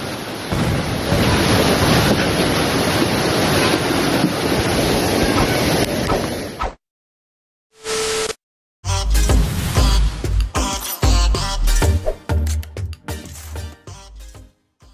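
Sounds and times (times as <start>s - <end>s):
floodwater rushing: 0.0s - 6.6s.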